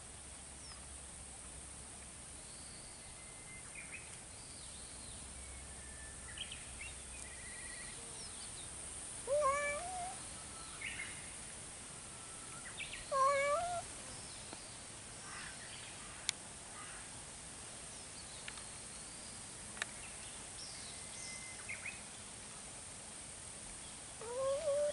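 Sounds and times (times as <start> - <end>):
cat meowing: 9.3 - 10.2, 13.1 - 13.8, 24.2 - 24.9.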